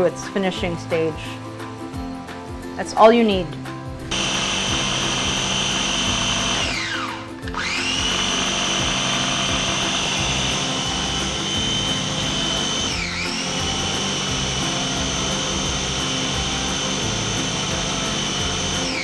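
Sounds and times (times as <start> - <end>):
food processor motor whine: 4.1 - 19.0.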